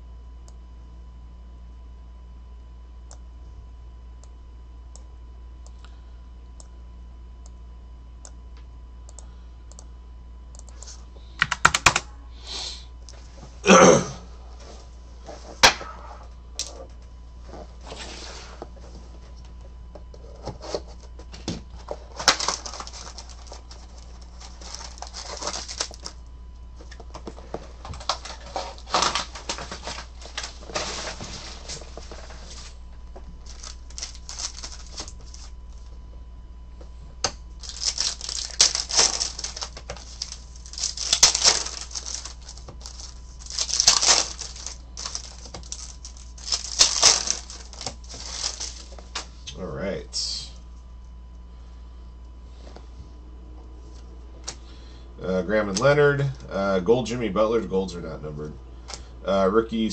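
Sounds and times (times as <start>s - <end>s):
cards shuffling: 20.2s - 26.2s, 26.8s - 35.9s, 37.6s - 49.3s
foil packs tearing: 22.1s - 26.2s, 27.8s - 32.8s, 33.4s - 35.5s, 37.6s - 49.2s.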